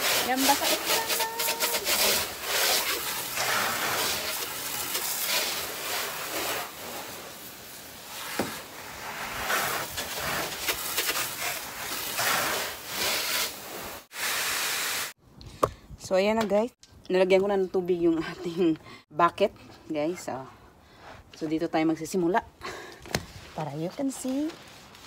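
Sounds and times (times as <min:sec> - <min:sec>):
hose spraying water on car: 0:00.0 - 0:15.2.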